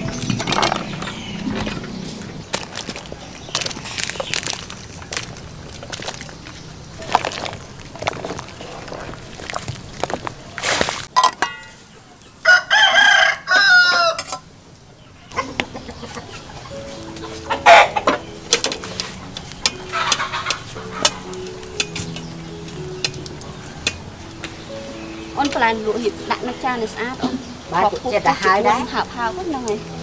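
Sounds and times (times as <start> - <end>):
rooster crowing: 12.4 - 14.3
faint background music: 15.1 - 30.0.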